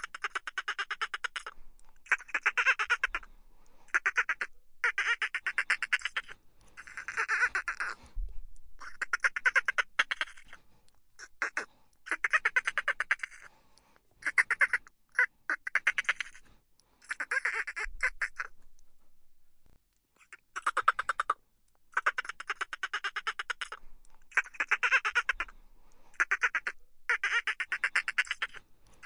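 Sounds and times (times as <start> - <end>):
dolphins chattering: 0.0 - 3.2, 3.9 - 8.0, 8.8 - 10.6, 17.0 - 18.6, 20.2 - 25.5, 26.2 - 28.6.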